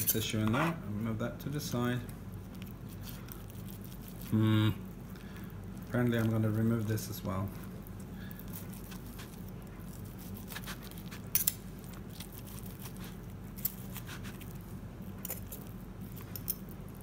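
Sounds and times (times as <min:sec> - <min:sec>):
low steady hum: 0:00.0 - 0:17.0
knife slicing meat: 0:08.6 - 0:14.6.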